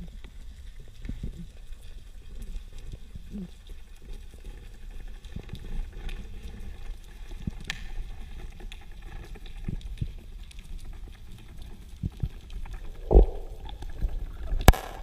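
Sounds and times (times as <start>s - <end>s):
faint clicks and crackles: 0.0s - 15.0s
low underwater rumble: 11.3s - 14.8s.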